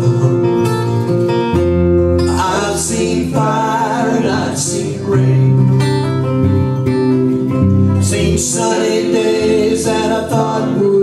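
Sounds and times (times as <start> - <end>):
fingerpicked acoustic guitars: 0.0 - 11.0
man singing: 2.2 - 5.9, 8.0 - 11.0.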